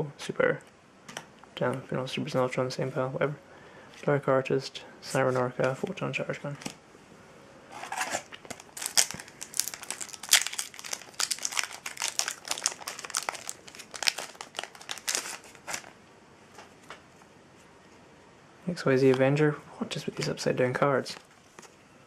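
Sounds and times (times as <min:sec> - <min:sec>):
foil wrapper tearing and crinkling: 0:07.9 - 0:16.0.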